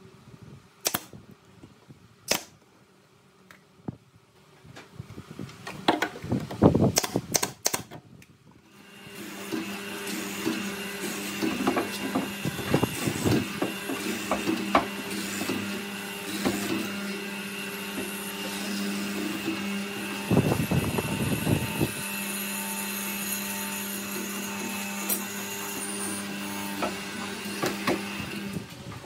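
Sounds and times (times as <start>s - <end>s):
electric motor hum: 8.6s - 29.0s.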